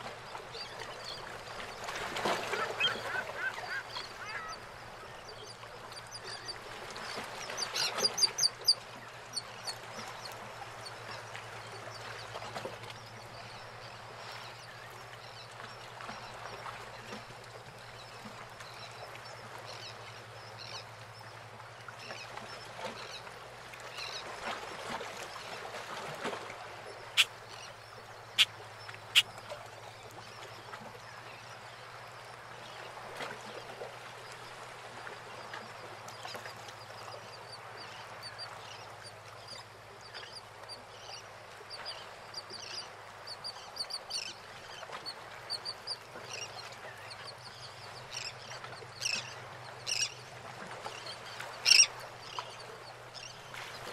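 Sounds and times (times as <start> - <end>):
water lapping around boats: 0.0 - 53.9
birds calling and chirping: 2.4 - 4.7.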